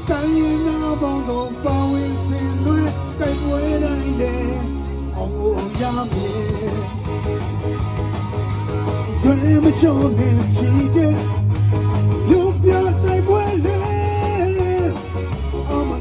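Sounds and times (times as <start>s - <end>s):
person singing: 0.0s - 7.2s, 9.1s - 11.4s, 12.2s - 16.0s
bass line: 0.0s - 16.0s
live rock band: 0.0s - 16.0s.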